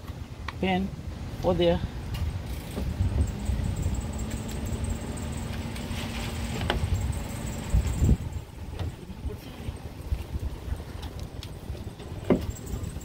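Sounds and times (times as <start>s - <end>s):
electrical hum: 2.5s - 8.4s.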